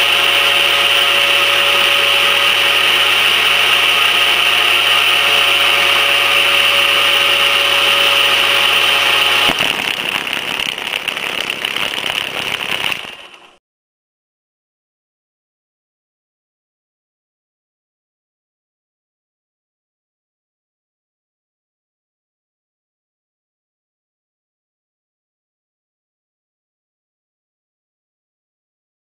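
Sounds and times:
spinning shaft whine and hum: 0.0 - 13.6
rough fluttering: 8.8 - 13.6.

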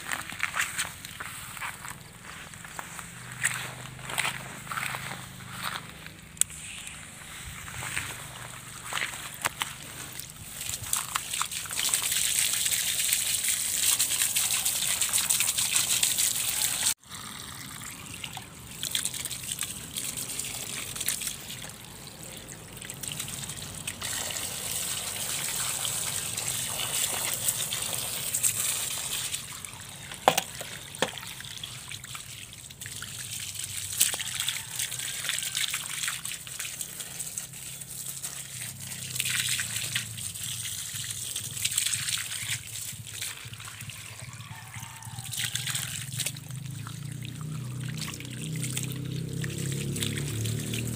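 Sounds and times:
hose water splashing: 0.0 - 50.9.

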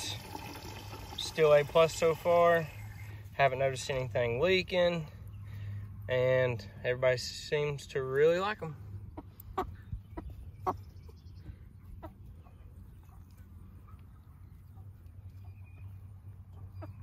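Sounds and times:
chickens clucking: 9.0 - 17.0.

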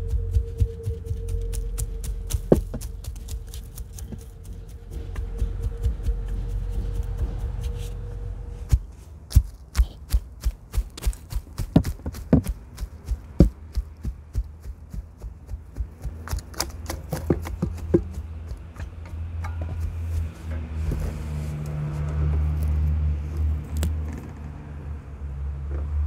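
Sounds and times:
metal rake scraping dry grass: 2.3 - 5.4, 6.3 - 9.3, 18.8 - 22.8.

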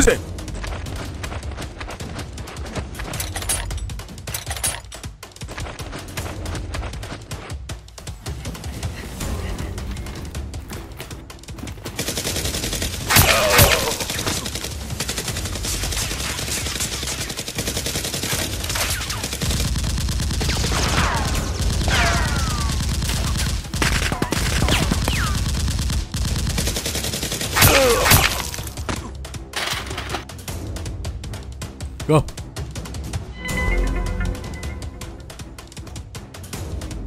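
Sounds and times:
toy blasters firing rapidly: 12.6 - 28.4.

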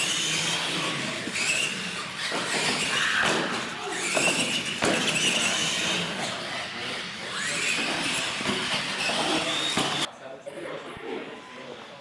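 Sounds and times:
electric motors whining: 0.0 - 10.1.

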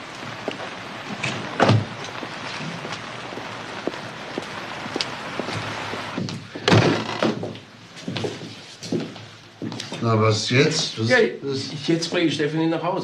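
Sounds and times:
rain hissing: 0.0 - 9.6
door banging shut: 1.2 - 2.0, 6.2 - 7.6
thud: 6.2 - 7.6.

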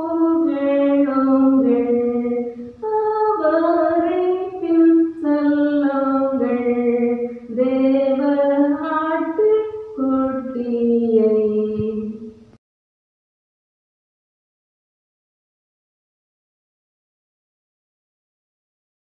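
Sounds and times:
woman singing unaccompanied: 0.0 - 12.4.

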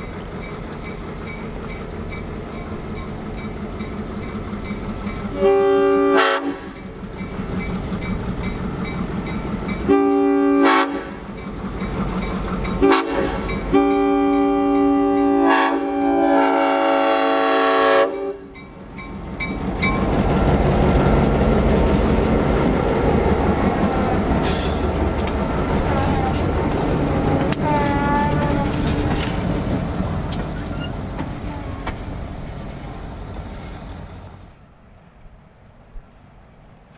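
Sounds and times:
locomotive engine rumble: 0.0 - 36.9
locomotive air horn blasts: 5.3 - 6.8, 9.9 - 11.2, 12.8 - 18.5, 27.2 - 28.8.

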